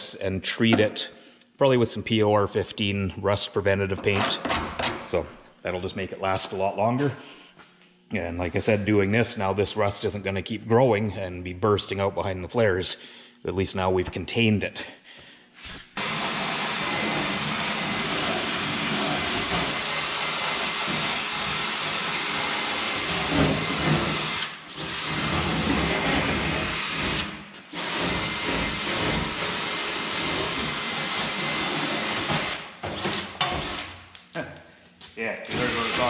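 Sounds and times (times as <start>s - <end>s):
power wire brush scratching metal: 16.0s - 34.0s, 35.5s - 36.0s.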